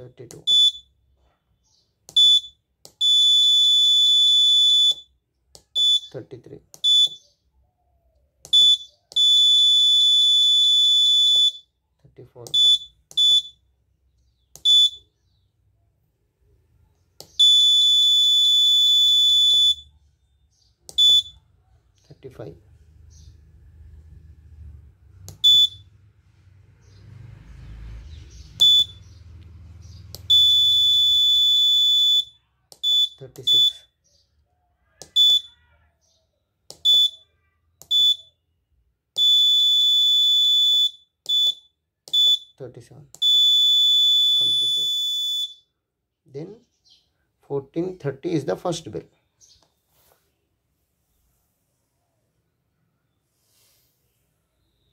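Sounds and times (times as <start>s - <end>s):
piezo buzzer beeping: 6.8s - 7.2s, 8.5s - 11.6s, 14.6s - 15.0s, 17.3s - 19.9s, 20.9s - 21.4s, 25.4s - 25.8s, 28.6s - 29.0s.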